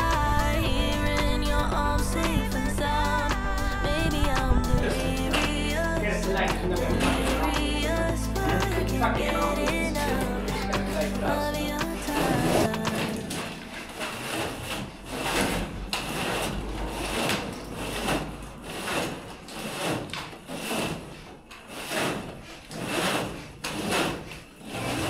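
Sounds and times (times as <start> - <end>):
cable rasping as pulled: 10.5 - 25.0.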